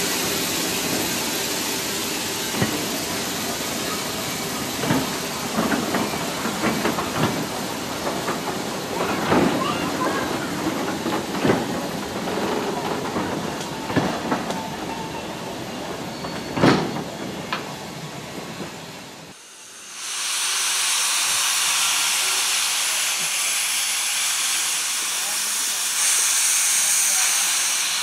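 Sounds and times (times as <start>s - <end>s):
steam hissing from locomotive: 0.0s - 15.1s, 19.3s - 28.0s
train wheels rolling: 0.0s - 19.2s.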